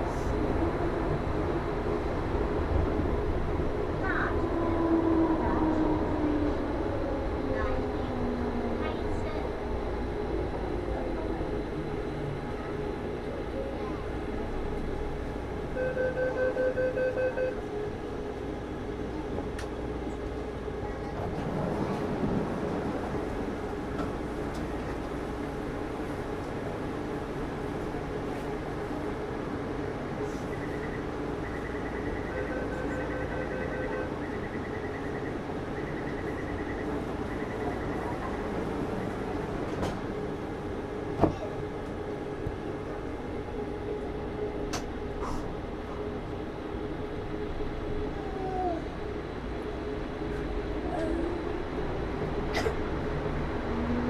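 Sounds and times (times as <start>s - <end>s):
train running rumble: 0.0s - 16.3s, 17.4s - 54.0s
rapid electronic warning beeps: 30.5s - 38.2s.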